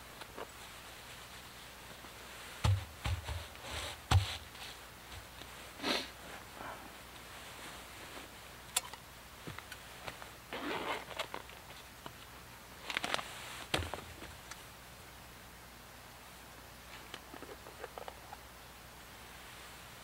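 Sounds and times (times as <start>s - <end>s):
stuff sack and clothing rustling: 0.0s - 8.6s, 9.4s - 11.9s.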